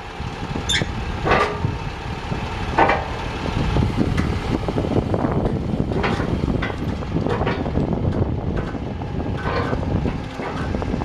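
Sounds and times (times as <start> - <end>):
diesel engine rumbling: 0.0 - 11.0
hydraulic boom squeaks and creaks: 0.6 - 1.7.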